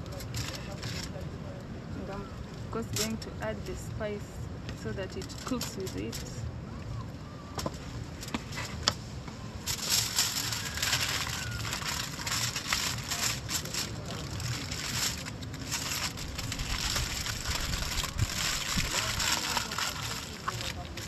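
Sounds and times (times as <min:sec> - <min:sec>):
aluminium foil crinkling: 0:00.0 - 0:01.2, 0:05.0 - 0:06.4, 0:09.6 - 0:21.0.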